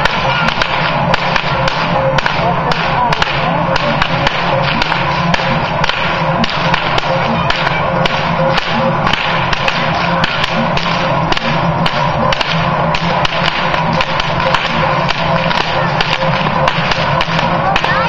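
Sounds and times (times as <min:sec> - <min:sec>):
large cowbells clanging: 0:00.0 - 0:18.0
whip cracking: 0:00.0 - 0:18.0.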